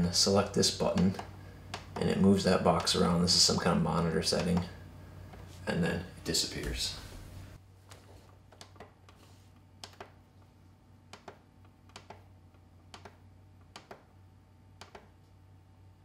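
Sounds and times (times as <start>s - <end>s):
low steady hum: 0.0s - 16.0s
monitor buttons clicking: 8.5s - 9.2s, 9.8s - 10.2s, 11.1s - 12.3s, 12.9s - 14.1s, 14.8s - 15.2s.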